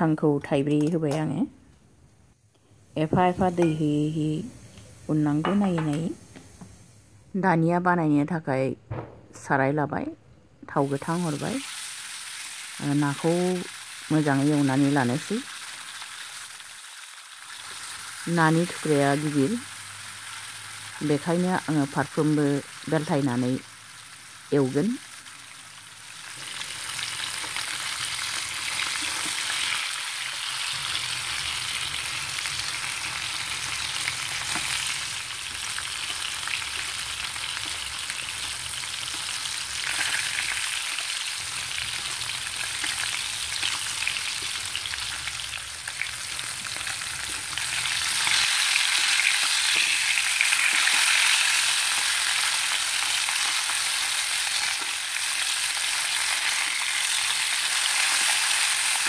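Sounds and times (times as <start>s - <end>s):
fish sizzling in hot oil: 10.8s - 59.0s.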